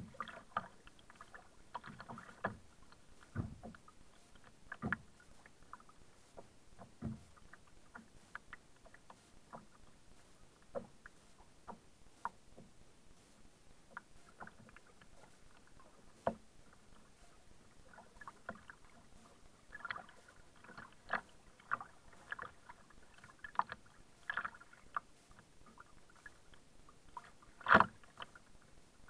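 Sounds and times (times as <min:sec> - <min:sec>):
paddle splashes and drips: 0:00.0 - 0:29.0
kayak knocking against piling: 0:01.8 - 0:03.8, 0:06.4 - 0:07.5
small knocks and clicks: 0:01.8 - 0:05.1, 0:06.4 - 0:09.8.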